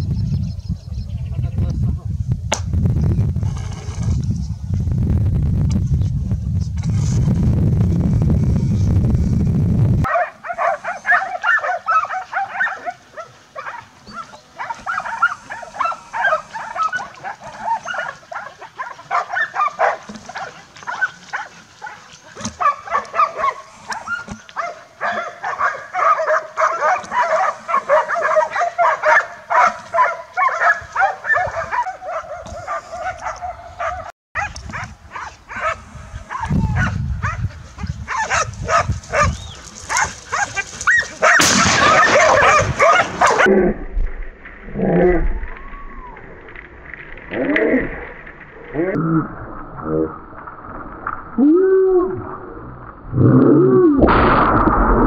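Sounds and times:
dogs barking rapidly: 10.0 - 43.5.

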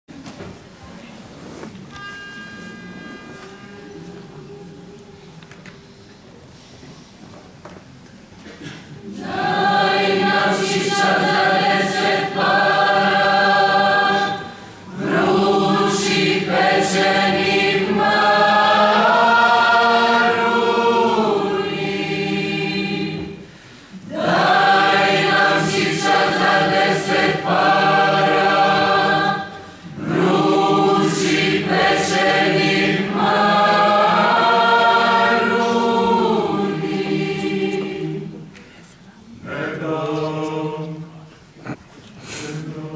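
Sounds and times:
mixed choir singing unaccompanied: 9.0 - 38.6, 39.3 - 41.4, 42.2 - 42.9.

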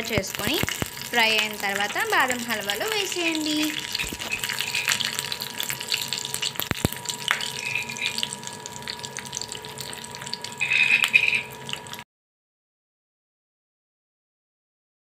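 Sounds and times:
nuts sizzling and popping in oil: 0.0 - 12.0.

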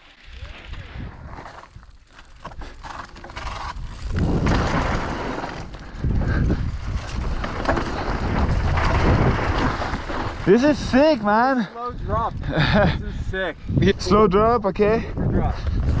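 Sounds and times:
bike rattling: 0.0 - 16.0
tyres crunching over dirt and rock: 0.2 - 11.7.

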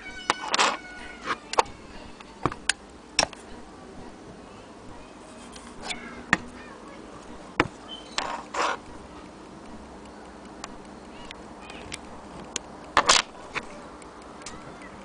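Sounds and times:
rustling and scraping: 0.3 - 3.6, 5.1 - 9.3, 11.7 - 15.0.

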